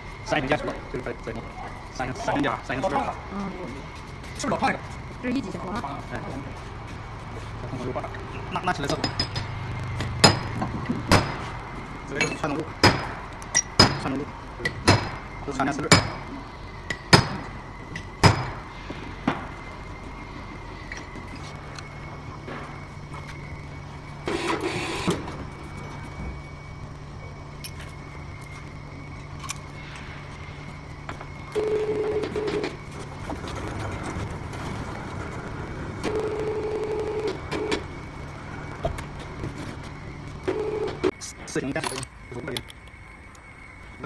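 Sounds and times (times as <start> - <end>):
steady low hum: 0.0 - 44.0
electronic beep tone: 8.3 - 8.9.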